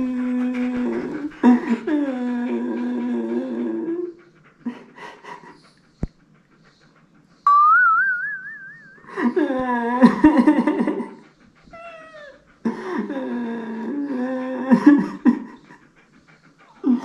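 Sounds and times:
puppy whining: 0.0 - 17.0
breathy puffs: 10.7 - 17.0.

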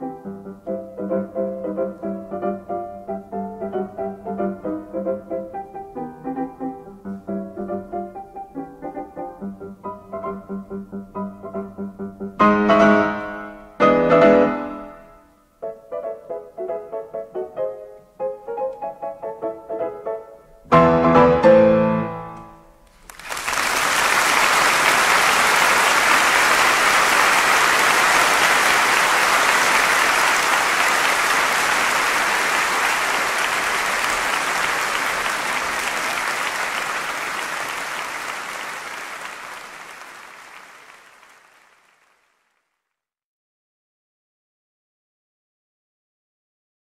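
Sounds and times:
loud piano chords: 0.0 - 22.8
audience applause: 22.8 - 42.6.

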